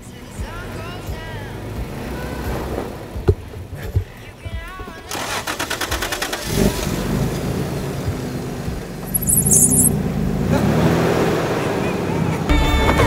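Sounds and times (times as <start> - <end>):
truck engine running: 5.1 - 12.2
short high-pitched sound: 9.1 - 10.0.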